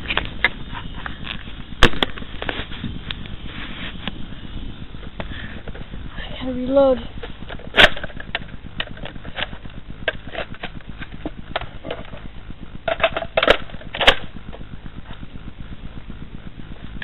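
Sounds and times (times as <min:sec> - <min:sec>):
sharp clicks and rustles: 0:00.0 - 0:06.2, 0:07.0 - 0:17.0
steady low rumble: 0:00.0 - 0:17.0.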